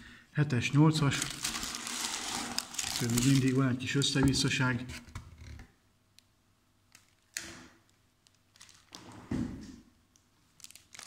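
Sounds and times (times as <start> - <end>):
packaging rustling: 1.1 - 3.6, 8.2 - 9.0, 10.6 - 11.0.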